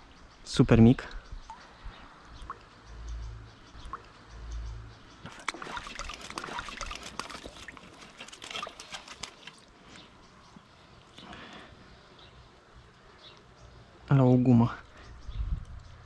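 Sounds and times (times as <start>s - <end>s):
small stream trickling: 0.1s - 11.3s.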